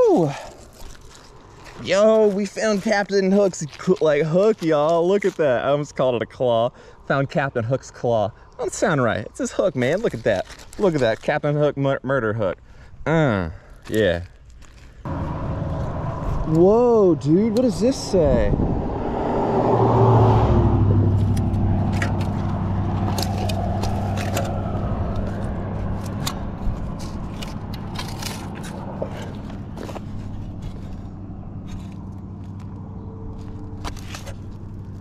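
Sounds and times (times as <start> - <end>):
vehicle passing by: 15.1 - 35.0
metal clicks and scrapes: 21.2 - 32.7.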